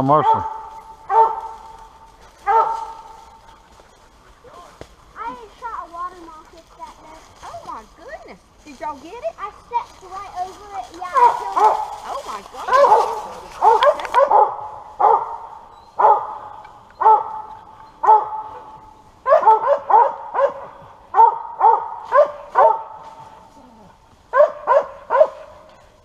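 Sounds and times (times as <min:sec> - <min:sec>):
dog barking: 0:00.2 - 0:01.8, 0:02.4 - 0:03.2, 0:11.1 - 0:23.0, 0:24.3 - 0:25.7.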